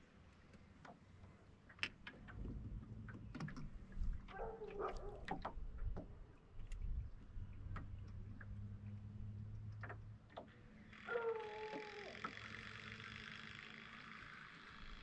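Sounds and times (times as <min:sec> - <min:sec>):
light clicks and taps: 0:00.4 - 0:10.6.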